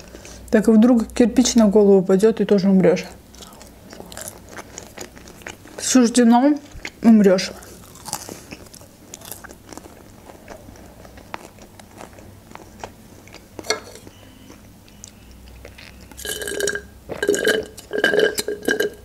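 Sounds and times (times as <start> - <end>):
wet chewing clicks: 7.8 - 16.3.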